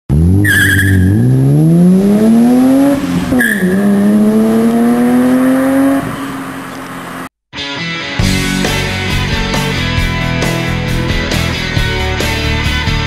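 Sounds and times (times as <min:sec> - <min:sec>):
car engine accelerating: 0:00.1 - 0:07.3
tyre squeal: 0:00.4 - 0:01.4, 0:03.3 - 0:04.0.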